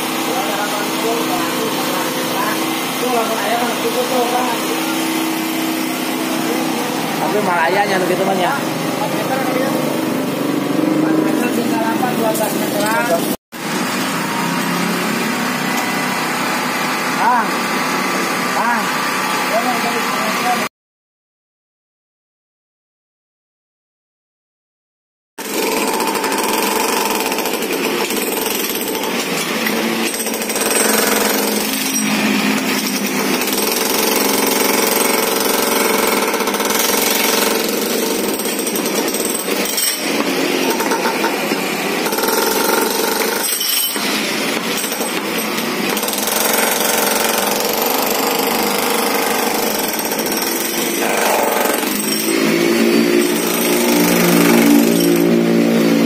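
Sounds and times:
jackhammer breaking concrete: 0:25.4 - 0:56.0.

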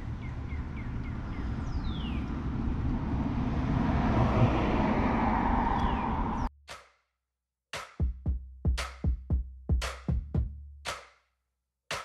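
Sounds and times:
low outdoor rumble: 0:00.0 - 0:06.5.

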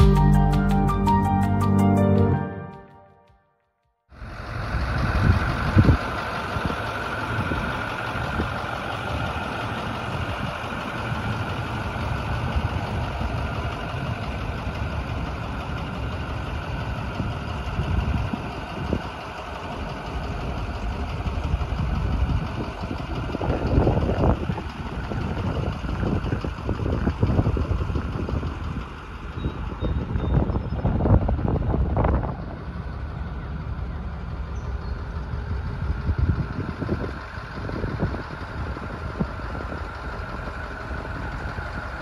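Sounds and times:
diesel truck engine idling: 0:00.0 - 0:03.0, 0:04.1 - 0:42.0.

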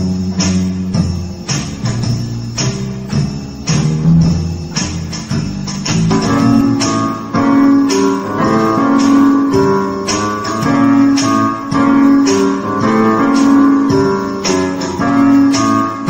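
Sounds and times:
keyboard plucked-string voice: 0:03.7 - 0:16.0.

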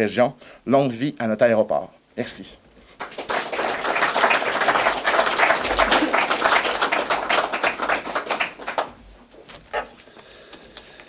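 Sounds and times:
audience applauding: 0:03.0 - 0:09.0.

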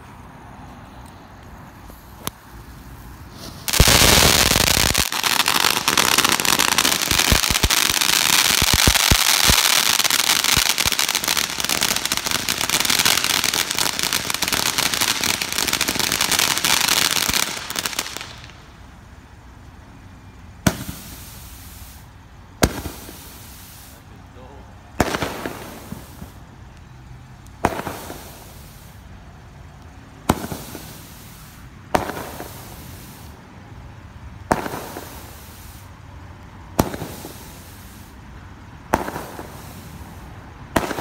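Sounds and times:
firework hissing and crackling: 0:01.0 - 0:19.8, 0:20.6 - 0:41.0
sharp pops: 0:03.3 - 0:18.5.

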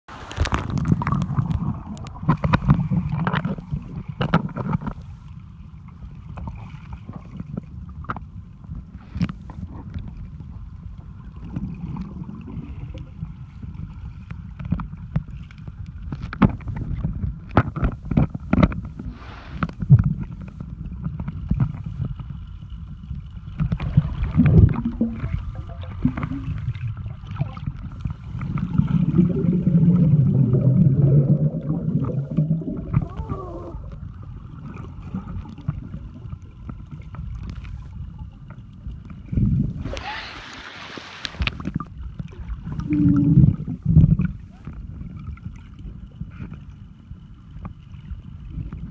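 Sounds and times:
muffled underwater rumble: 0:00.1 - 0:48.9
clicks and knocks in water: 0:00.2 - 0:05.0, 0:14.5 - 0:19.0.

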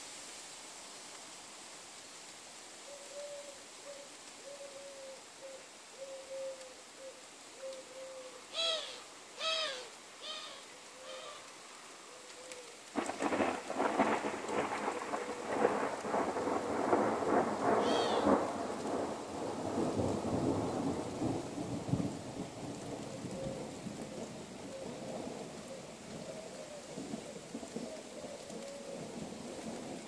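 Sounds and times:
bird cooing: 0:02.8 - 0:12.8, 0:17.8 - 0:18.4, 0:23.0 - 0:29.9
thunder rolling: 0:13.0 - 0:22.5.

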